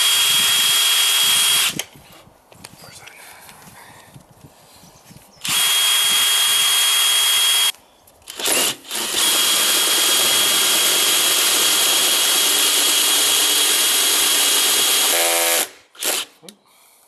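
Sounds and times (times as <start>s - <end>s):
drill hole saw cutting plastic: 5.4s - 7.7s, 8.3s - 16.3s.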